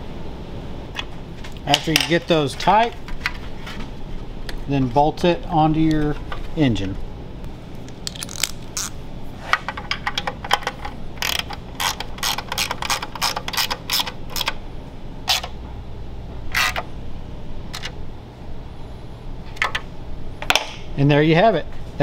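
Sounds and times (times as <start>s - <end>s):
ratchet wrench clicking: 10.1s - 14.6s.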